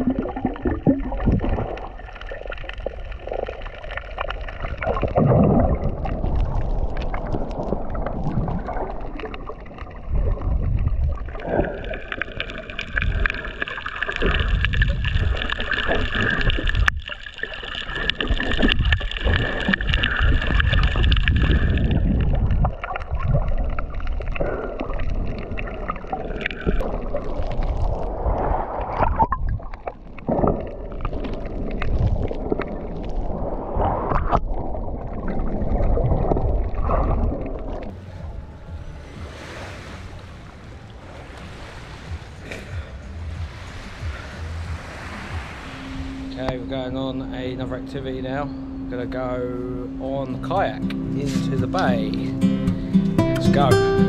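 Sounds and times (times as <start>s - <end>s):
underwater sloshing and gurgling: 0.0s - 53.2s
steady high whine: 37.9s - 54.0s.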